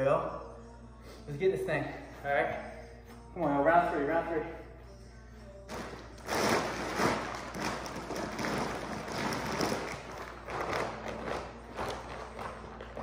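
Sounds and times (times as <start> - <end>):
plastic sack rustling and crinkling: 5.7 - 13.0.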